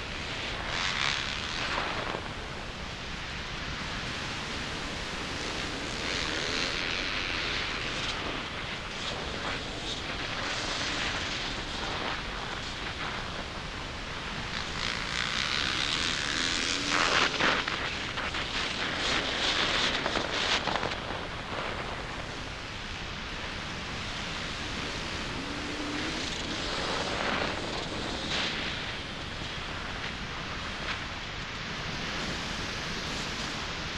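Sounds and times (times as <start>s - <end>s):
wind rush on microphone: 0.0s - 33.9s
dirt bike engine revving: 14.6s - 17.6s.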